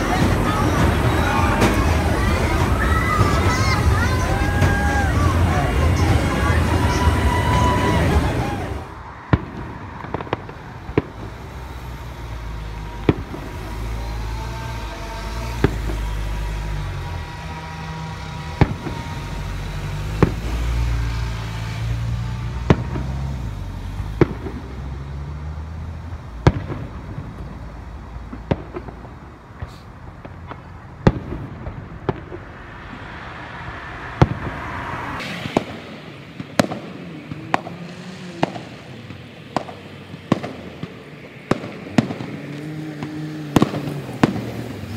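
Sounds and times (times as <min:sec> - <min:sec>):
fireworks bangs: 0:00.0 - 0:44.9
low rumble: 0:30.4 - 0:39.3.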